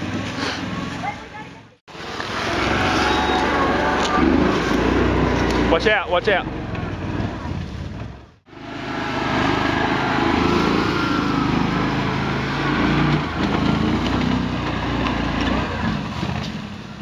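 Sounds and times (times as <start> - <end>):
small engine running under load: 1.9 - 5.9, 8.5 - 15.9.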